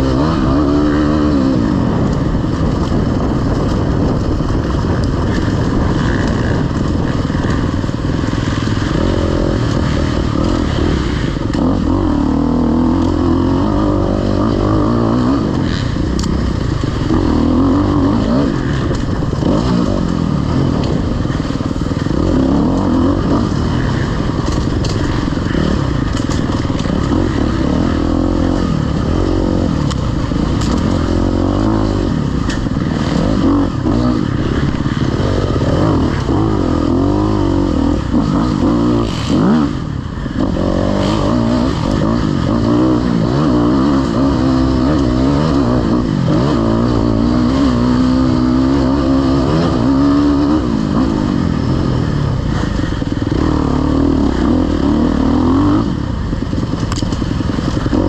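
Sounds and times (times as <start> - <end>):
dirt bike engine revving: 0.0 - 58.0
clicks and knocks of bike: 24.4 - 27.4.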